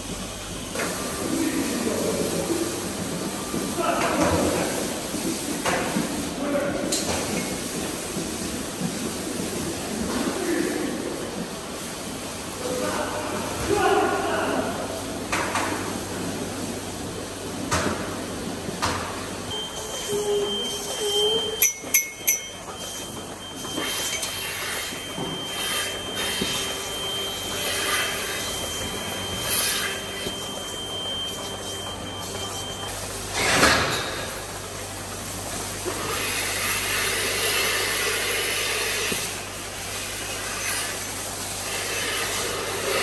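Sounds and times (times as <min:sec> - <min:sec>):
milking machine hiss and hum: 0:00.0 - 0:43.0
metal clinks: 0:21.5 - 0:23.0.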